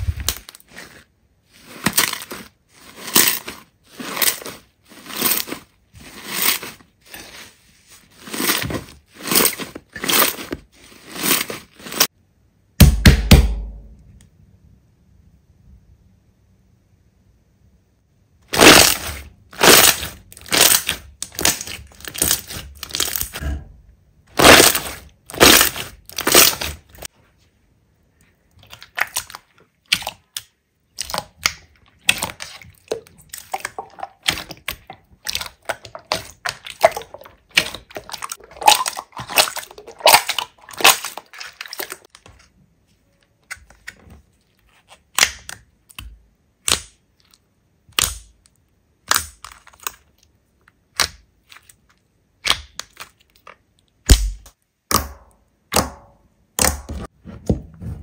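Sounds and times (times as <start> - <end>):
sticky slime clicks and pops: 45.2 - 47.0, 47.9 - 48.3.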